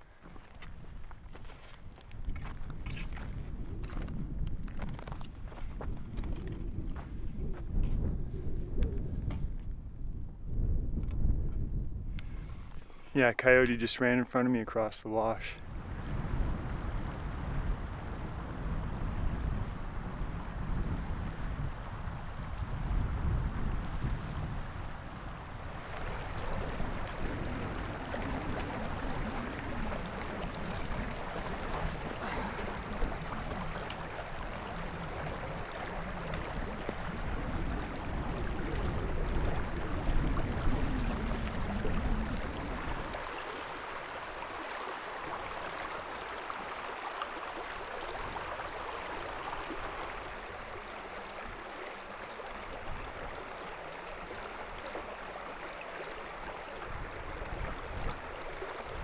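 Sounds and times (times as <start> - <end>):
wind buffeting microphone: 0.0 - 12.8, 15.6 - 46.8, 47.4 - 59.0
river water rushing: 25.3 - 59.0.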